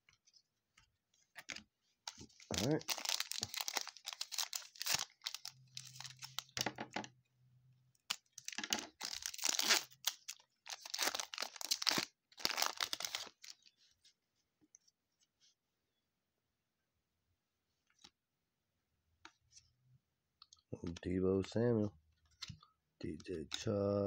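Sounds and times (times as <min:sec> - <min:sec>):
foil wrapper tearing and crinkling: 0:02.4 - 0:06.6, 0:08.1 - 0:13.6.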